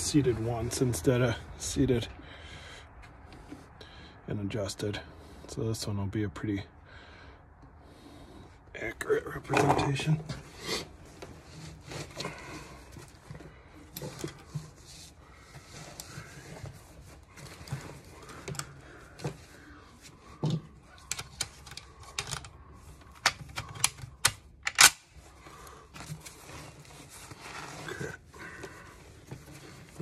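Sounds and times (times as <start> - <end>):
rifle loading clicks and clatter: 21.0 - 25.2
rifle bolt closing clack: 23.8 - 25.0.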